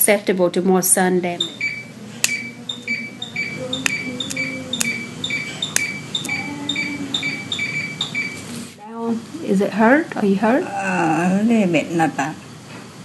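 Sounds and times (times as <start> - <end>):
two-tone electronic beeping: 1.4 - 8.6
sharp clicks: 2.2 - 2.9, 3.8 - 6.4.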